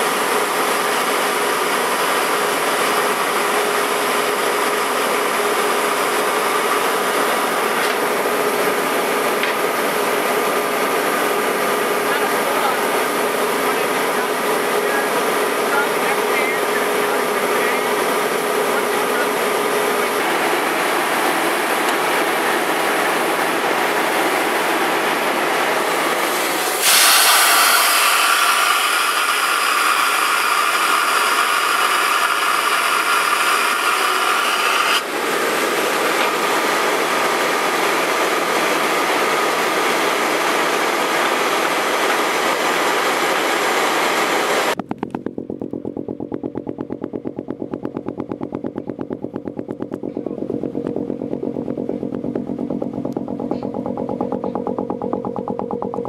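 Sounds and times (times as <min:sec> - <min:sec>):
rapid pulsing clatter: 0:00.1 - 0:56.0
drill machine mechanical din: 0:44.7 - 0:56.0.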